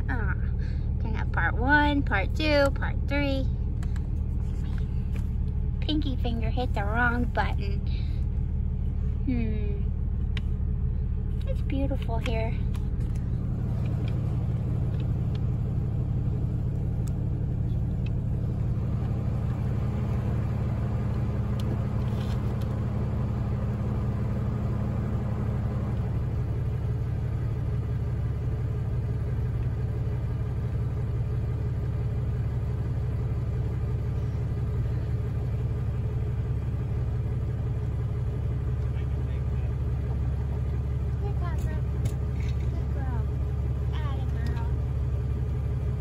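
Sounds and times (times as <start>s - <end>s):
vehicle engine idling: 0.0s - 46.0s.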